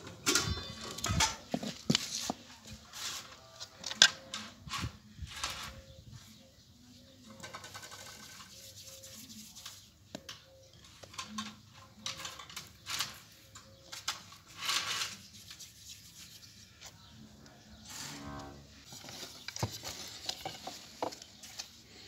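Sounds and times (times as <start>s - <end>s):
brushing sounds: 7.8s - 10.0s, 14.5s - 16.8s, 17.8s - 20.8s.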